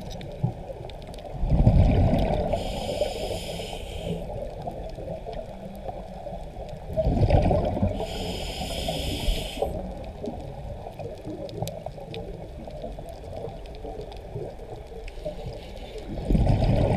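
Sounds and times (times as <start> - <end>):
exhaled bubbles underwater: 0.0 - 3.0, 4.3 - 15.1, 16.0 - 16.9
faint clicks: 2.1 - 7.0, 8.0 - 16.2
regulator hissing inhale: 2.4 - 4.6, 7.9 - 9.8, 15.1 - 16.2.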